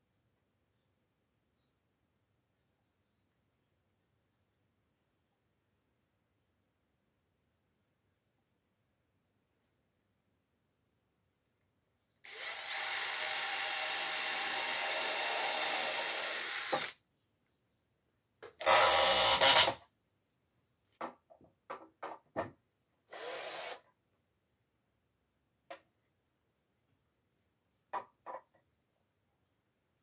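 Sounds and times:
cordless drill driving screws: 12.2 - 17.0, 18.6 - 19.8, 23.1 - 23.9.

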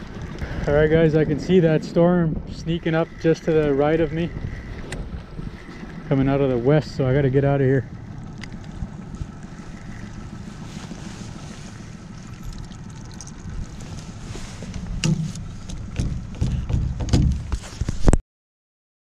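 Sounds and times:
wind buffeting microphone: 0.0 - 18.2
knocks of gear being handled: 14.6 - 18.1.

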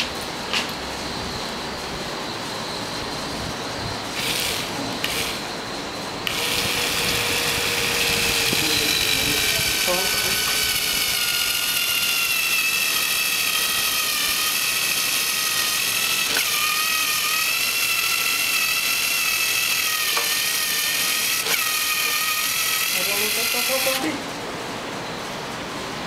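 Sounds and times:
motor whining: 3.7 - 24.3.

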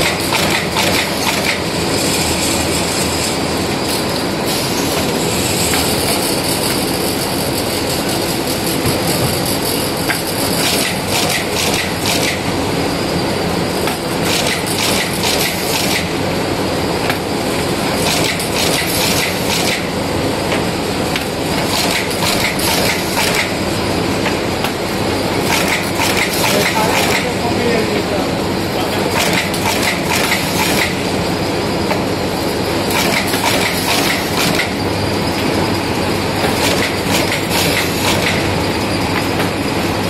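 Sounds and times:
machine mechanical clatter: 0.0 - 12.5, 13.8 - 16.2, 18.0 - 19.9, 20.5 - 23.6, 24.2 - 27.4, 28.9 - 31.0, 31.8 - 34.8, 36.3 - 39.8.

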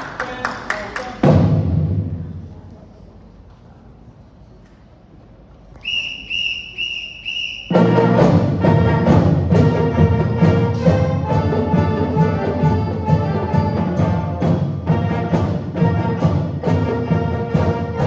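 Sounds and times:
marching band with drums: 1.1 - 2.2, 7.2 - 18.0
short whistle blasts: 5.8 - 8.0.

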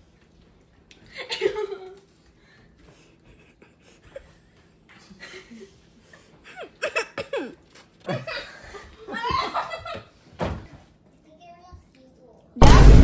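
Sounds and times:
girl laughing: 1.1 - 2.0, 5.0 - 10.1.

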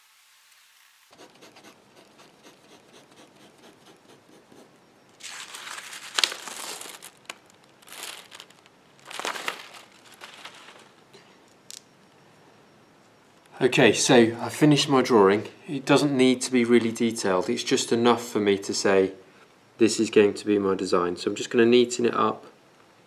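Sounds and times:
pencil scratching on paper: 1.1 - 4.7
paper rustling and crinkling: 5.2 - 11.1.

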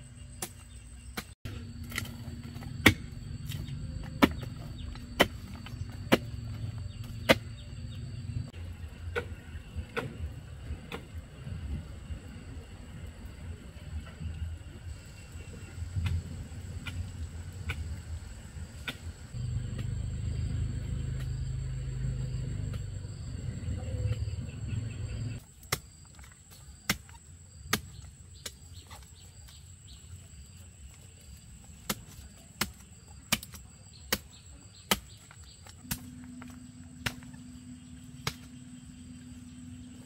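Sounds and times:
low mechanical rumble: 0.0 - 25.4, 35.7 - 40.0.

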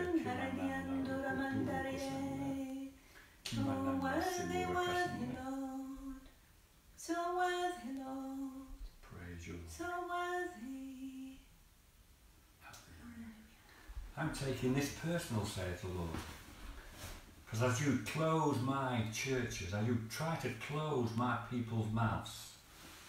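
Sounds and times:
woman singing unaccompanied: 0.0 - 6.3, 7.0 - 8.8, 9.8 - 11.5.

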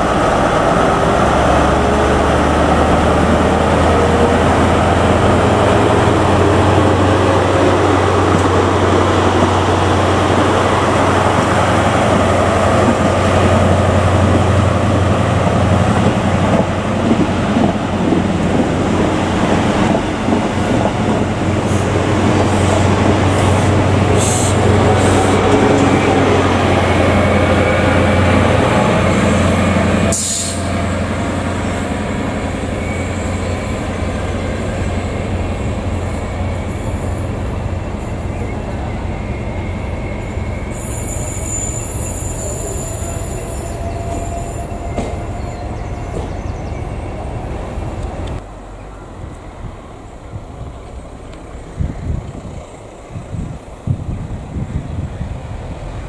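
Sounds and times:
diesel train passing: 0.0 - 56.0
faint wheel squeal: 38.2 - 46.8.

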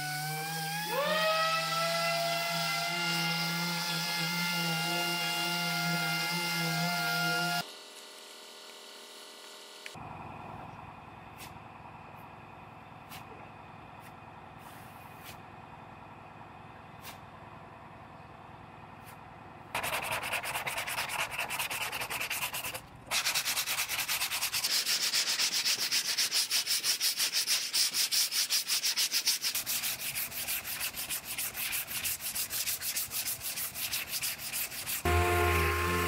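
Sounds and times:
sandpaper rasping on body filler: 2.6 - 7.6, 19.8 - 35.2.

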